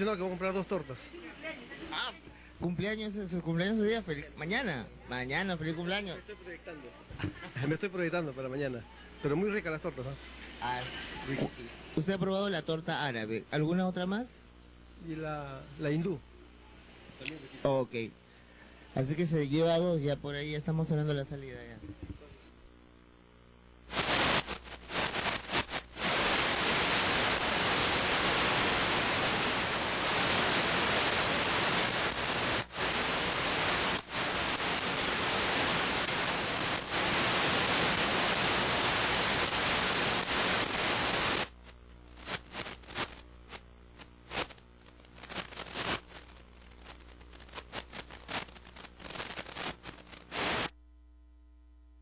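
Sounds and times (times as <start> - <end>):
electronic static hiss: 0.0 - 52.0
faint steady hum: 0.0 - 52.0
irregular crackles: 23.9 - 50.7.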